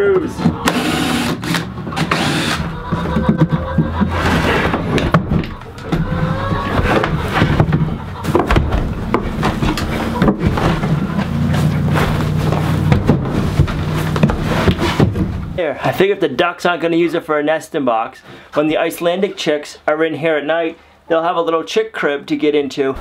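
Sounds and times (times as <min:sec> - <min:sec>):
cordless drill driving screws: 0:00.6 - 0:02.7.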